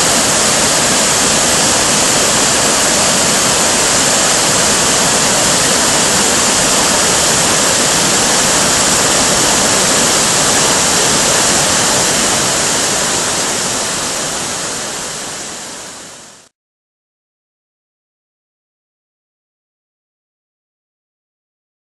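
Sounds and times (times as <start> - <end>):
waterfall rushing over boulders: 0.0 - 16.5.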